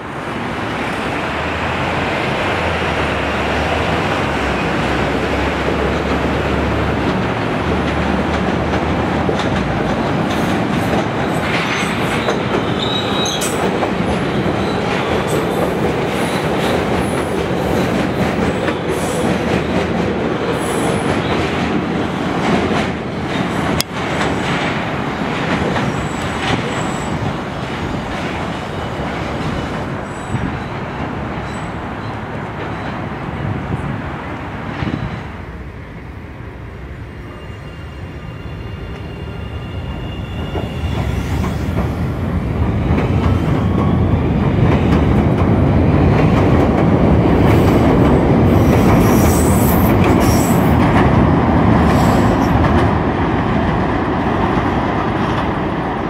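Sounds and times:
train rail rumble: 0.0 - 56.0
high-pitched wheel squeals: 11.9 - 13.6, 37.3 - 41.7.

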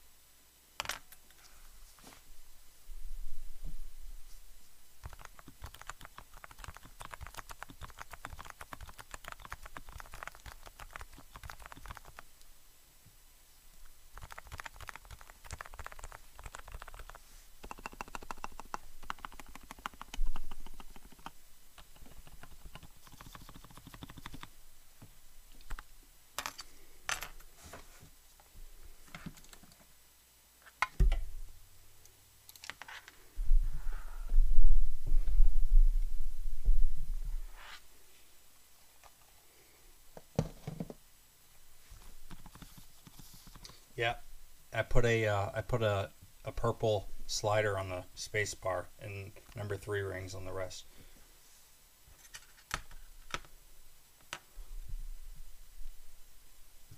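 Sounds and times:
keyboard keystrokes: 5.0 - 12.2, 14.2 - 24.5.

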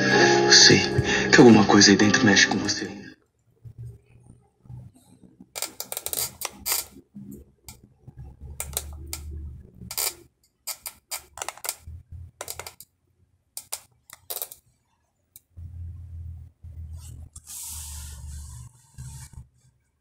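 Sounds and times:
low hum: 15.5 - 19.4.

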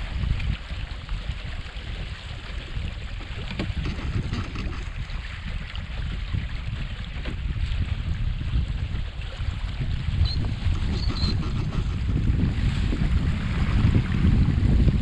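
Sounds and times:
water splashing along boat hull: 0.0 - 15.0
wind buffeting microphone: 0.0 - 15.0.

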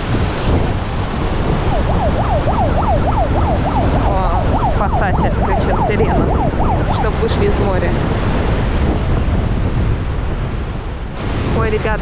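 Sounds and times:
wind: 0.0 - 12.0
siren warbling: 0.9 - 8.4.

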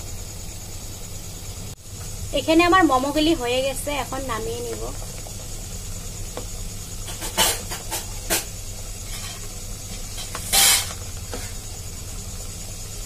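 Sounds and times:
steady low hum: 0.0 - 13.0
spoon scraping a steamer tray: 7.0 - 11.6.

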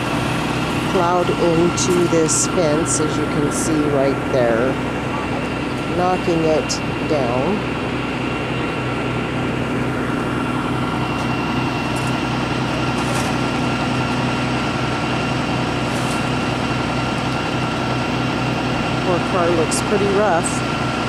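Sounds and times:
vehicle engine idling: 0.0 - 21.0.

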